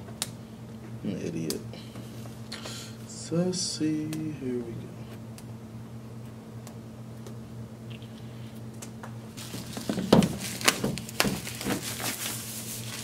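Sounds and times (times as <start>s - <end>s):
plastic shrink wrap crinkling: 9.4s - 13.0s.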